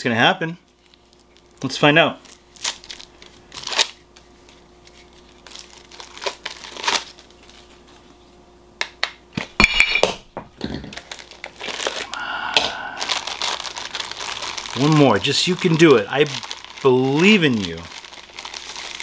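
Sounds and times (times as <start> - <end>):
plastic wrapping crinkling: 0.7 - 8.1, 10.8 - 19.0.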